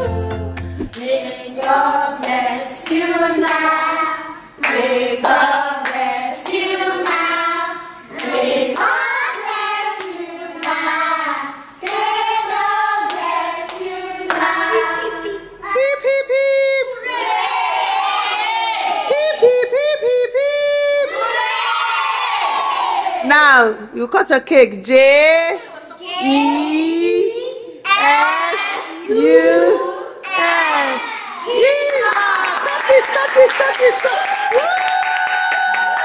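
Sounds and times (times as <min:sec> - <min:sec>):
children singing: 0:00.0 - 0:15.8
children clapping: 0:13.1 - 0:14.5, 0:31.6 - 0:36.0.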